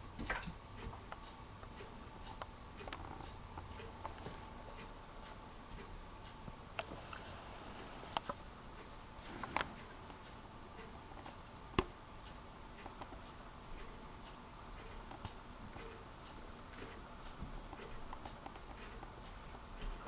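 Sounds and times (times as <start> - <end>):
sharp clicks and light taps: 16.7 - 20.0.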